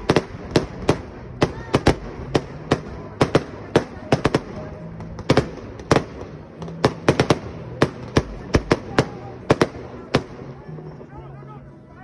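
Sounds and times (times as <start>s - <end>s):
fireworks bangs and cracks: 0.0s - 10.6s.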